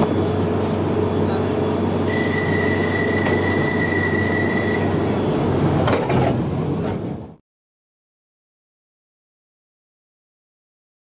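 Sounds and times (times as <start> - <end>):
high steady whine: 0.0 - 5.5
train low rumble: 0.0 - 7.4.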